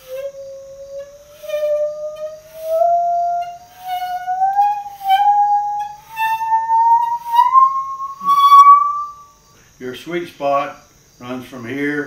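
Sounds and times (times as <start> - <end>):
bowed musical saw tone: 0.0 - 9.4.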